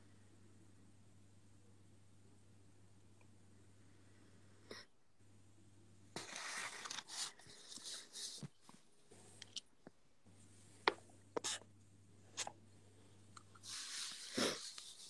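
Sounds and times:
pen nib scratching on paper: 11.4s - 11.7s.

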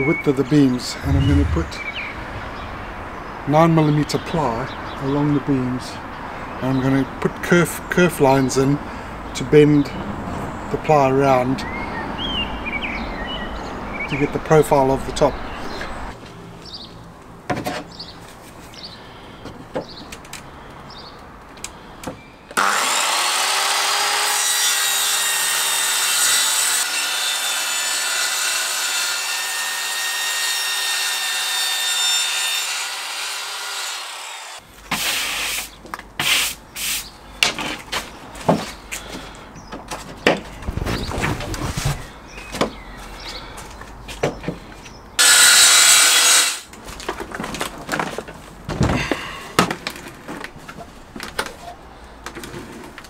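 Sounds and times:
circular saw cutting plywood: 22.6s - 34.6s, 45.2s - 46.7s.

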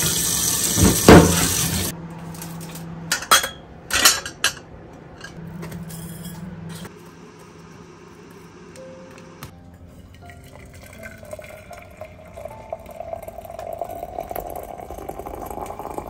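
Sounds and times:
water pouring into a glass teapot: 9.9s - 16.0s.

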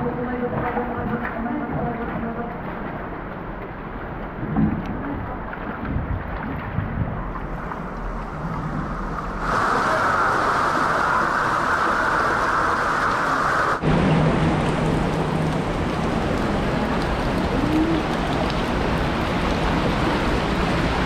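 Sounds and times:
river and waterfall rushing: 8.8s - 21.0s.

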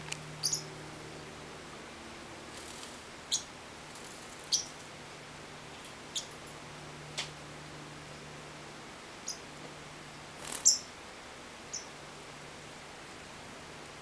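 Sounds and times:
parrot chirping: 0.4s - 0.7s, 3.3s - 3.5s, 4.4s - 4.7s, 10.6s - 10.9s.

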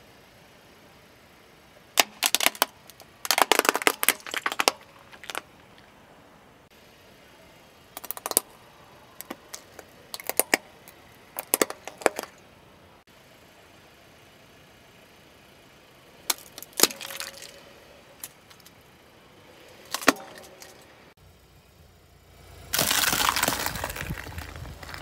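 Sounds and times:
tyre crushing plastic crackling: 2.0s - 5.9s, 9.2s - 10.6s, 11.4s - 12.4s, 16.3s - 17.6s, 19.9s - 20.8s, 22.8s - 25.0s.

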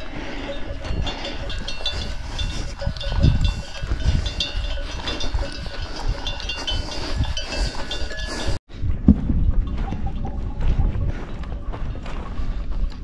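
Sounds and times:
livestock bells clinking: 0.0s - 8.6s
gusty rumble on microphone: 0.0s - 13.0s.

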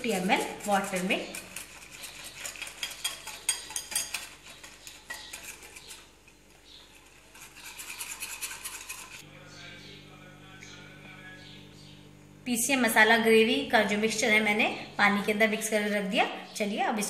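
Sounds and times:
whisk clinking against glass bowl: 0.0s - 6.0s
faint steady hum: 9.2s - 17.0s.

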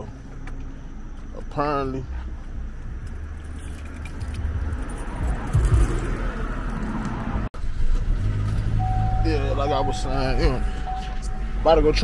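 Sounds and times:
low car hum: 0.0s - 12.0s
keys jangling: 3.4s - 7.2s.

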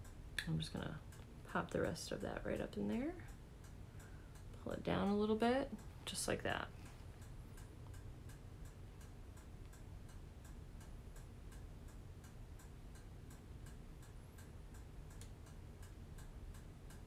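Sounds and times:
faint steady ticking: 0.0s - 17.0s
low room hum: 0.0s - 17.0s.

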